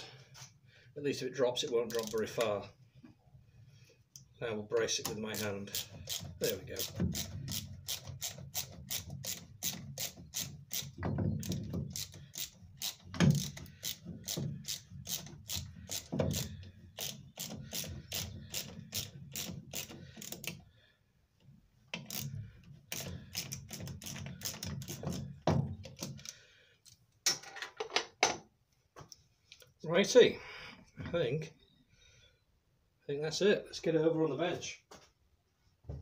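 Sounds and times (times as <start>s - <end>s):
socket ratchet clicking: 5.4s - 20.6s.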